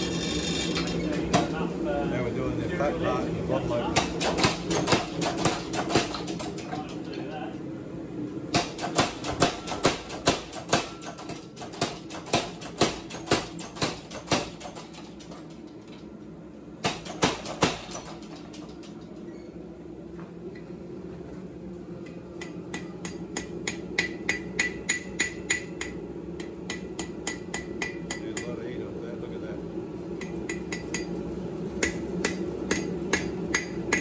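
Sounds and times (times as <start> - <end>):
steady hum: 0.0 - 34.0
hammer striking metal on anvil: 8.5 - 14.8, 22.0 - 28.6, 30.2 - 31.2, 31.8 - 34.0.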